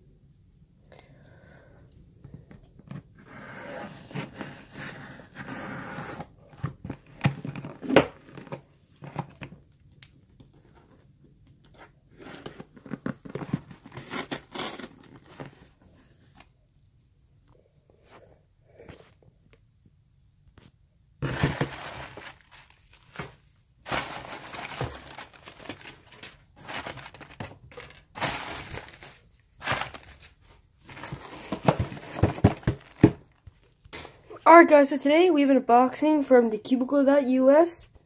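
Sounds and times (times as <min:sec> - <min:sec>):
packing tape tearing: 0:13.4 - 0:15.4
cardboard knocks: 0:31.5 - 0:33.2.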